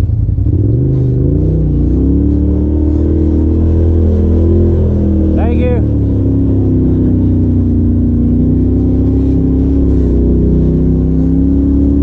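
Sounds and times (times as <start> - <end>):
engine droning: 0.0 - 12.0.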